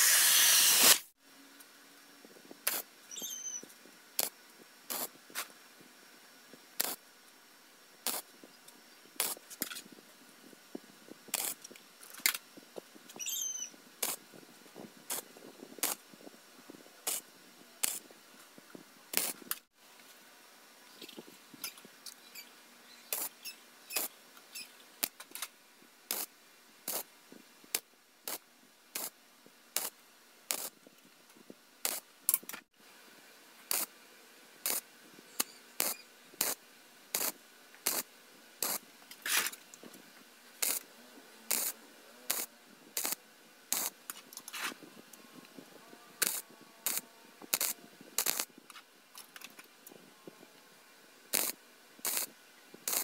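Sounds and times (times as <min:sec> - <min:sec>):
crackling welding arc bursts: 0:00.0 - 0:01.2, 0:02.6 - 0:05.5, 0:06.8 - 0:07.1, 0:08.0 - 0:08.5, 0:09.1 - 0:09.9, 0:11.3 - 0:14.4, 0:15.1 - 0:16.1, 0:17.0 - 0:18.1, 0:19.1 - 0:19.7, 0:23.1 - 0:25.4, 0:26.1 - 0:30.8, 0:31.8 - 0:32.6, 0:33.7 - 0:34.0, 0:34.6 - 0:39.6, 0:40.6 - 0:40.9, 0:41.5 - 0:44.8, 0:46.2 - 0:49.6, 0:51.3 - 0:53.0.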